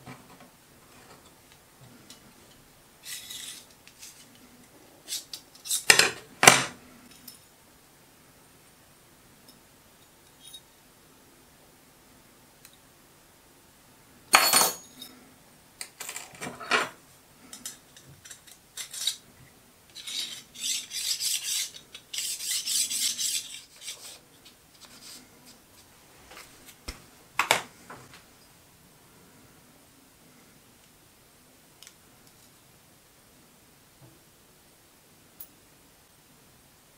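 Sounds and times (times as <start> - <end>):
caliper jaw scraping along beam: 20.0 - 24.2.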